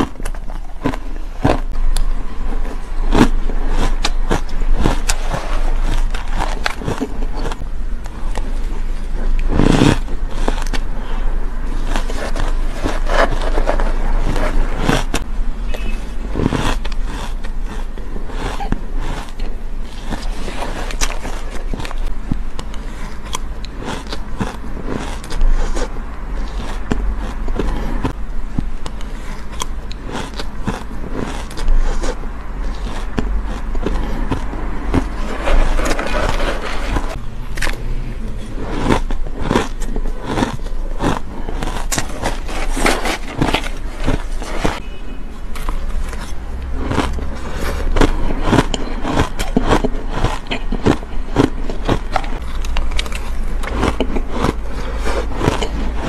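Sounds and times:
chewing crunchy shaved ice: 0.0s - 56.0s
metal spoon scraping ice: 9.3s - 22.1s, 34.9s - 37.8s, 38.7s - 45.0s.

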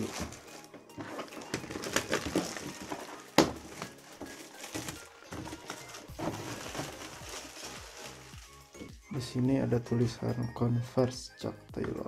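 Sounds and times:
plastic wrap crinkling: 0.0s - 9.1s.

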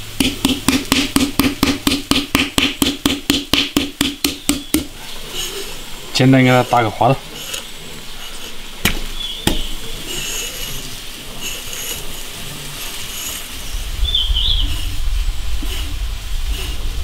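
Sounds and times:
low rumble: 13.5s - 17.0s.

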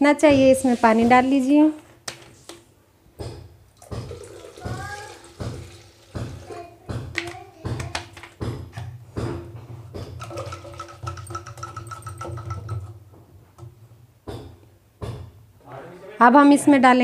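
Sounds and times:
wooden churner knocking on pot: 3.2s - 15.4s
liquid sloshing in a pot: 3.8s - 6.6s, 10.0s - 13.1s.

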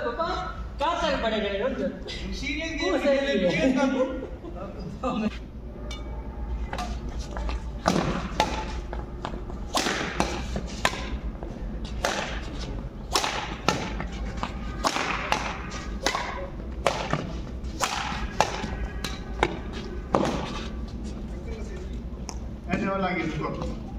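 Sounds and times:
badminton rackets hitting shuttlecock: 6.7s - 11.2s, 11.9s - 20.6s.

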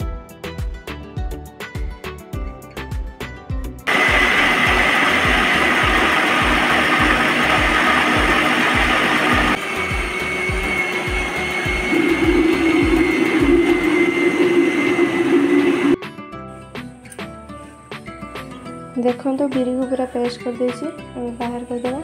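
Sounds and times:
mixer grinder whining: 3.9s - 16.0s.

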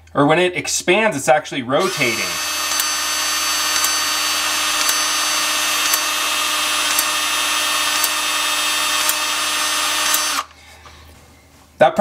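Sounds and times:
expander head clicking: 1.8s - 10.6s
powered expansion tool running: 1.8s - 10.6s.

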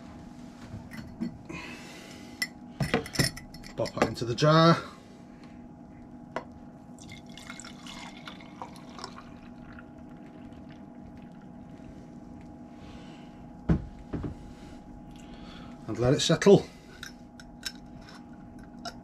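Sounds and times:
steady low hum: 0.0s - 19.0s
slurry trickling and dripping: 7.0s - 12.6s.

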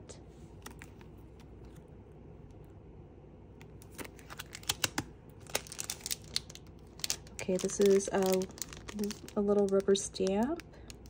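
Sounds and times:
packaging rustling and crinkling: 3.8s - 11.0s.

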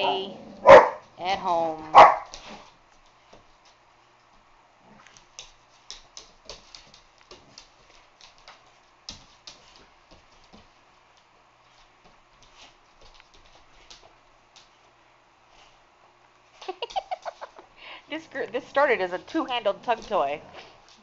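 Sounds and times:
dog claws on hardwood floor: 1.8s - 14.9s, 18.4s - 21.0s.

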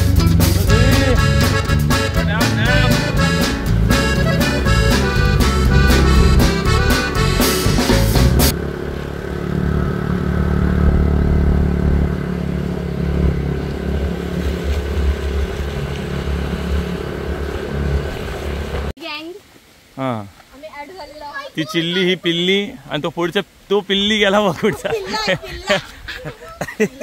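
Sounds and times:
accordion background music: 0.0s - 8.5s
low hum: 0.0s - 18.9s
motor vehicle engine running: 0.0s - 18.9s.

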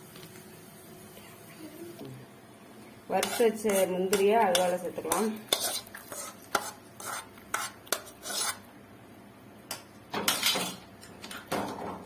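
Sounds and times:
spoon scraping a pan: 3.1s - 8.7s, 9.7s - 10.8s.

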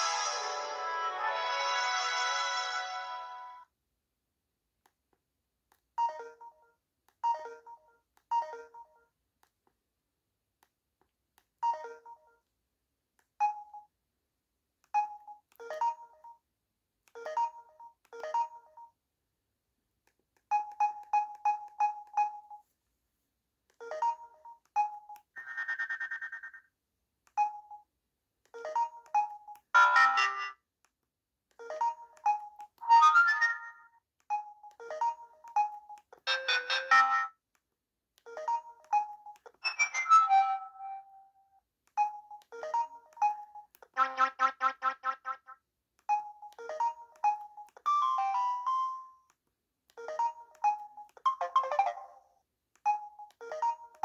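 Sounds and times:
phone alert tones: 6.0s - 6.6s, 7.2s - 9.0s, 11.6s - 12.4s, 15.0s - 16.4s, 17.1s - 19.0s, 23.8s - 26.6s, 28.6s - 30.6s, 31.6s - 37.4s, 38.3s - 41.4s, 42.0s - 49.3s, 50.0s - 54.0s.

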